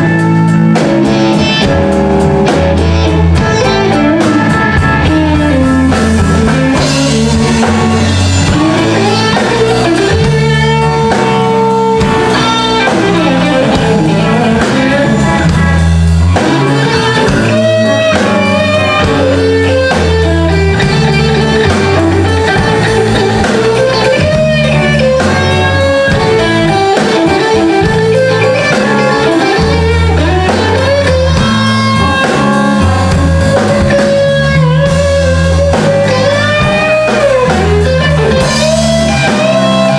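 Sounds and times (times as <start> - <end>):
drums: 0.0 - 39.9
electric bass line: 0.0 - 39.9
electric guitar lead lines: 0.0 - 39.9.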